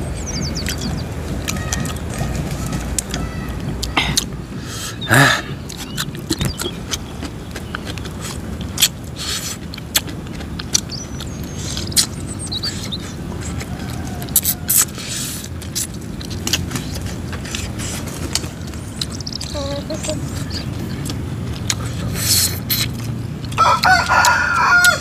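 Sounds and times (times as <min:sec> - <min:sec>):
chewing and mouth smacking: 0:05.6 - 0:25.0
sharp clicks and crunches: 0:05.7 - 0:12.2, 0:13.4 - 0:20.1, 0:20.9 - 0:25.0.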